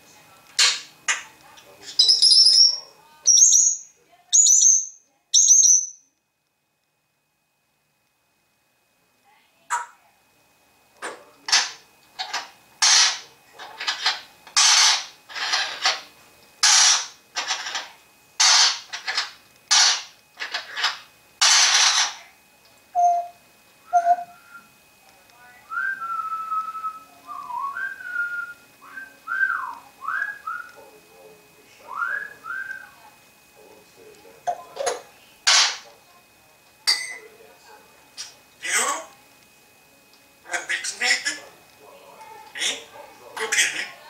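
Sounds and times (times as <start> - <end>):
parrot whistling: 1.8 - 6.0, 23.0 - 24.7.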